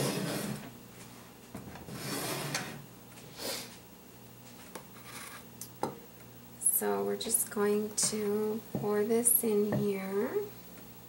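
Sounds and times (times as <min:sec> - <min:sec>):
containers rubbing and scraping: 0:00.0 - 0:00.7, 0:01.8 - 0:02.8.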